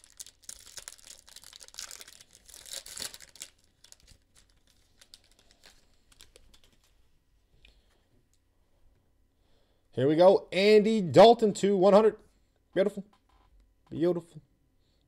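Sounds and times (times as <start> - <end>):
foil wrapper tearing and crinkling: 0.0 - 6.9.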